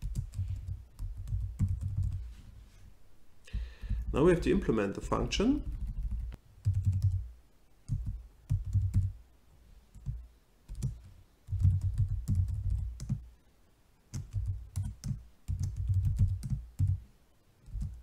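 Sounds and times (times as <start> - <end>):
typing on computer keyboard: 0.0 - 2.2, 5.6 - 7.2, 7.9 - 9.1, 10.0 - 13.2, 14.1 - 17.0, 17.6 - 18.0.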